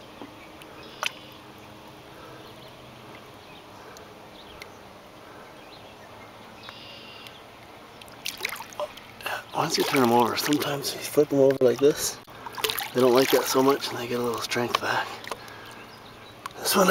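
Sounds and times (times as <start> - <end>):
open water ambience: 0.0 - 16.9
faint ticks: 2.7 - 4.8, 6.6 - 8.2, 16.4 - 16.6
faint high chirp: 6.6 - 7.4.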